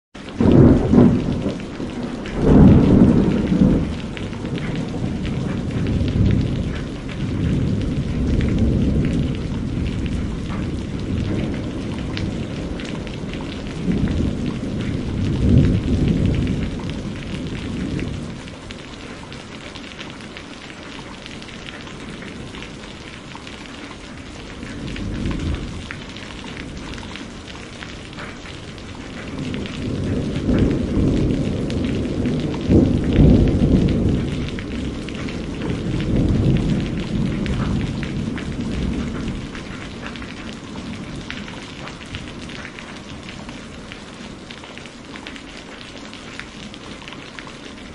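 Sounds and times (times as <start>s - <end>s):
heavy rain: 0.2s - 47.9s
thunder rolling: 0.3s - 18.6s, 24.2s - 44.0s.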